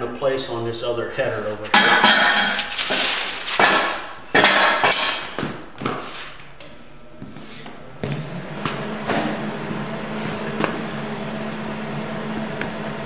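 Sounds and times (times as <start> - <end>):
metal parts clanking: 1.8 - 5.3.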